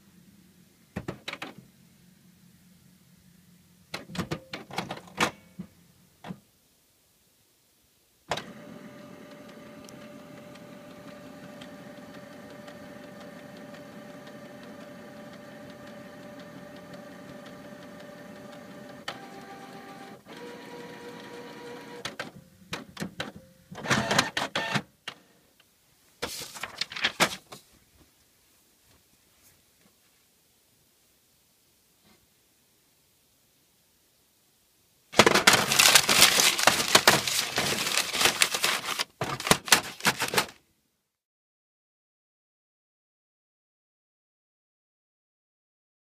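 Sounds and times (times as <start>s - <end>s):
inkjet printer printing: 8.3s - 22.2s, 23.8s - 24.8s.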